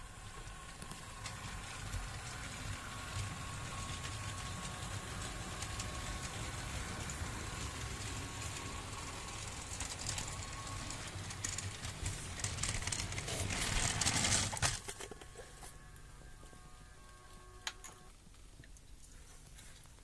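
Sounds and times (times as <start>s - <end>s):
wheels rattling over track: 0.0s - 15.3s
model train motor hum: 0.0s - 18.1s
thin whine: 0.0s - 18.3s
loud rattling noise: 0.9s - 15.0s.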